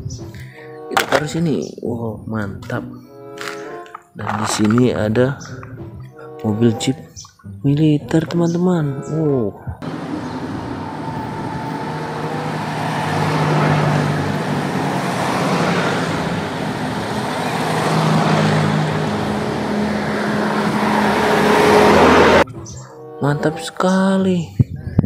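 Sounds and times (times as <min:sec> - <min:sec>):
military vehicles driving past: 0:09.8 - 0:22.5.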